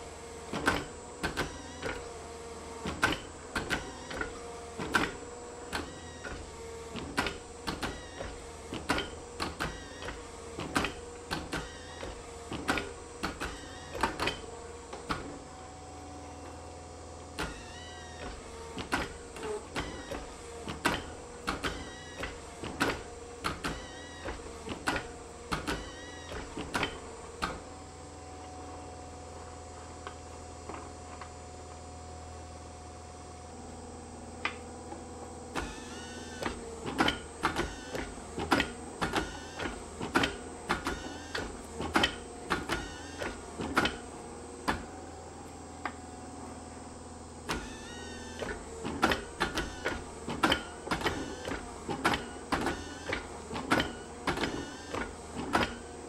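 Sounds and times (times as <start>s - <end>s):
hydraulic press motor hum: 0.0s - 56.0s
brief squeaks: 17.4s - 18.3s, 47.5s - 48.6s.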